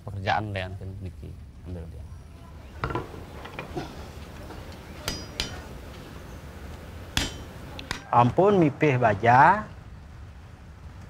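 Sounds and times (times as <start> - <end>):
hammer blows on anvil: 2.8 - 8.1.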